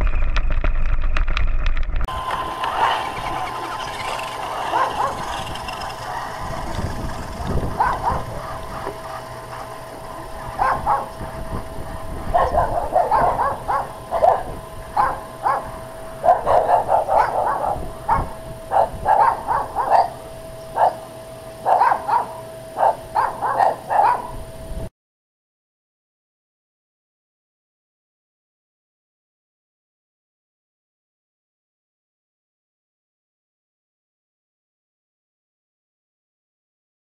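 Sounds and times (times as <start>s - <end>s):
faint steady whine: 2.0s - 24.9s
dog barking: 2.7s - 6.8s, 7.4s - 20.2s, 20.8s - 21.0s, 21.6s - 24.4s.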